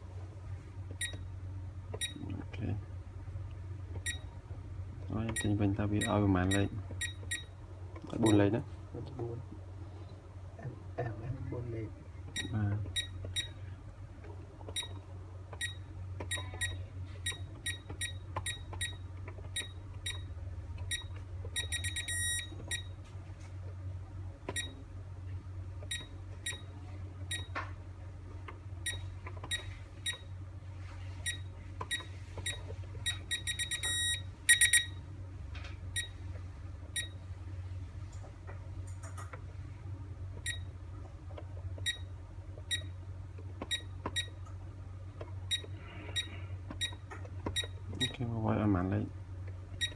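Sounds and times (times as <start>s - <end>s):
low steady hum: 0.0s - 49.9s
rapid beeps: 2.0s - 2.2s, 5.4s - 7.5s, 12.4s - 13.6s, 15.6s - 19.0s, 20.9s - 22.9s, 31.2s - 35.0s, 41.8s - 42.1s
alarm keypad beeping: 5.3s - 7.5s, 15.6s - 19.0s, 20.9s - 22.9s, 31.2s - 35.0s.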